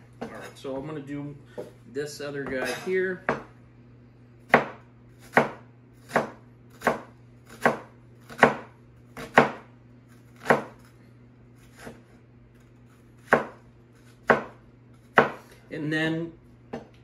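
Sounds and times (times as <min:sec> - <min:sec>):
knife chopping on cutting board: 0:03.3 - 0:03.5, 0:04.5 - 0:10.9, 0:11.6 - 0:12.2, 0:13.2 - 0:15.6.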